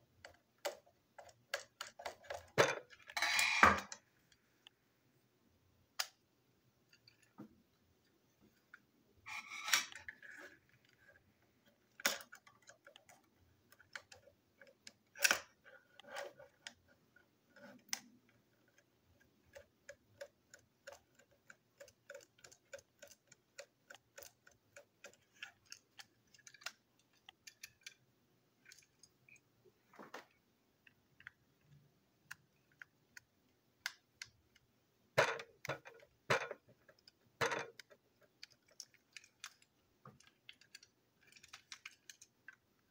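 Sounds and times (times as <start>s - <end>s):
plastic toy parts clicking: 0.2s - 4.1s, 8.7s - 29.4s, 30.8s - 42.9s.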